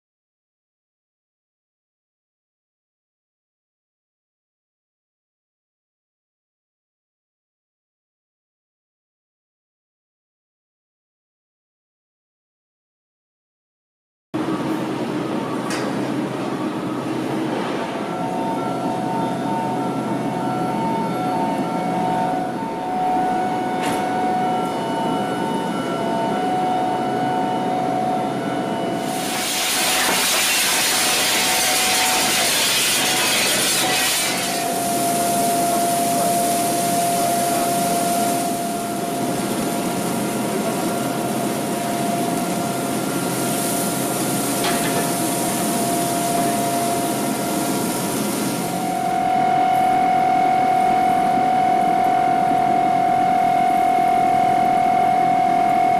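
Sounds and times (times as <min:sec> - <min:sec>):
machinery hum with whining tones: 0:14.4 - 0:55.9
loud hiss: 0:29.0 - 0:30.3.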